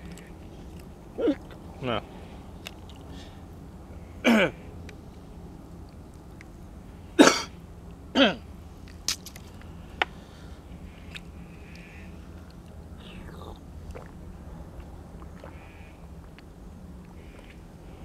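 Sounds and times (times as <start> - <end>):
man coughing and clearing throat: 4.2 - 4.6, 7.2 - 7.5, 8.2 - 8.4.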